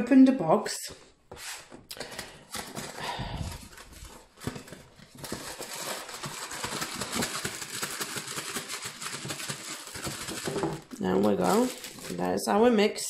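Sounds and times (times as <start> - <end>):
plastic bag crinkling: 1.9 - 12.7
cardboard box tearing: 3.7 - 12.2.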